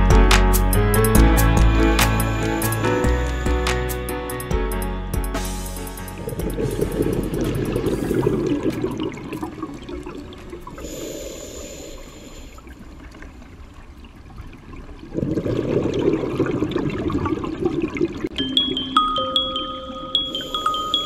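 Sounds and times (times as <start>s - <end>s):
exhaled bubbles rushing underwater: 6.2s - 11.3s, 12.3s - 18.3s
regulator hissing inhalation: 10.8s - 12.7s, 20.3s - 21.0s.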